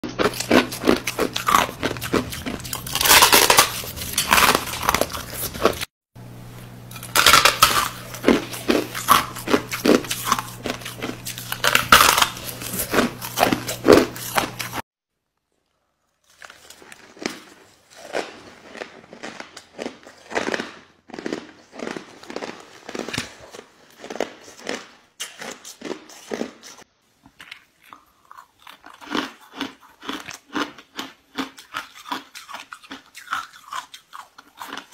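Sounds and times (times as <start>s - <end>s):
crunching and chewing ice: 0.0s - 5.9s, 6.9s - 14.8s, 15.9s - 34.9s
steady low hum: 0.2s - 14.8s.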